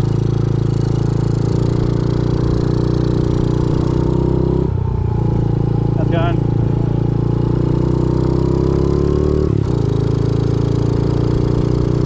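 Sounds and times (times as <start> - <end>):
small motorcycle engine running: 0.0 - 12.0.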